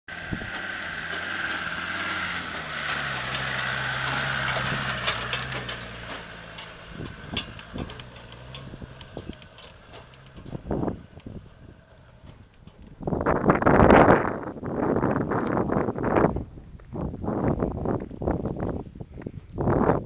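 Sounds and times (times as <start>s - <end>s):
car engine driving past: 0.1s - 13.0s.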